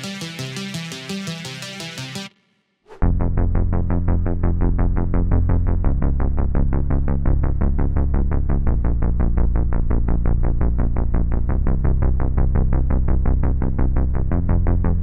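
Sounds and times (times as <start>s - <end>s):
synth bass repeated notes: 3.0s - 15.0s.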